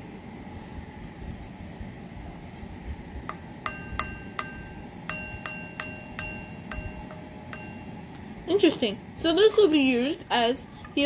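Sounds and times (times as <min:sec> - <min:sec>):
alarm bell gong struck: 0:03.7 - 0:08.0.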